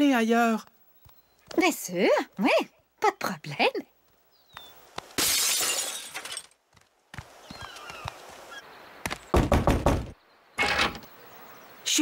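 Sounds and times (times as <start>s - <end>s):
glass shattering: 5.2s - 6.6s.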